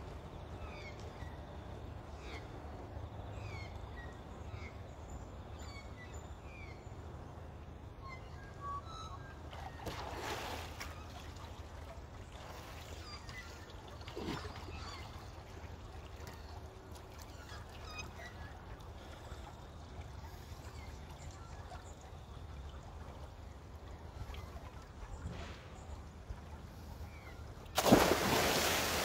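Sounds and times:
water splashing and sloshing: 9.4s - 29.0s.

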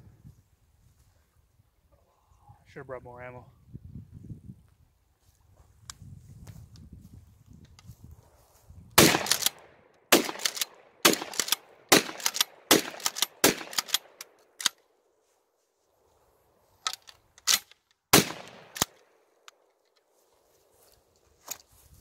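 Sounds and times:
shotgun pump racking clack: 9.0s - 9.6s, 10.2s - 14.8s, 16.8s - 20.0s
shotgun shots: 9.0s - 14.2s, 17.5s - 19.0s.

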